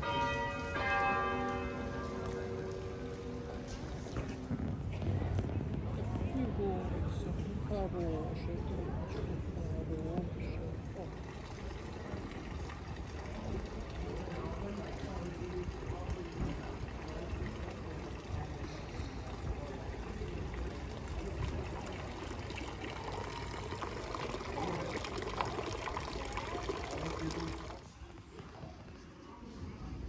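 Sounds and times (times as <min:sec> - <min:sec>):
fountain water splashing into basin: 0:08.8 - 0:28.5.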